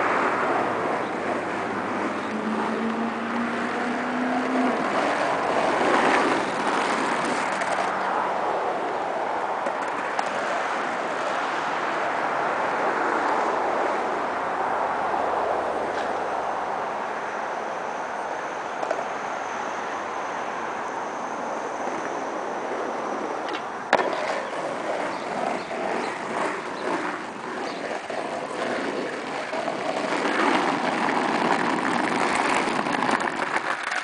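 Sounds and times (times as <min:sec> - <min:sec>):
skateboard wheels rolling on asphalt: 0:00.0 - 0:34.0
skateboard landing clack: 0:23.5 - 0:24.5.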